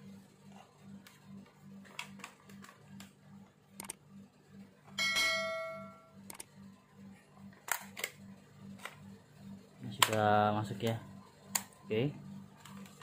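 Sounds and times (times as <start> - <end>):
bright metallic ring: 5.0 - 6.2.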